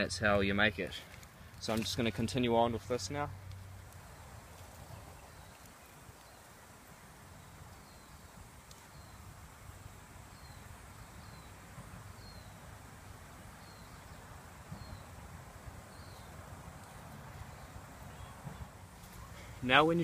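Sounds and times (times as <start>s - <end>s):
outdoor background noise: 0.0s - 20.0s
bird chirping: 4.0s - 6.7s, 7.3s - 9.3s, 10.2s - 12.8s, 13.5s - 15.2s, 15.8s - 16.4s, 17.4s - 19.6s.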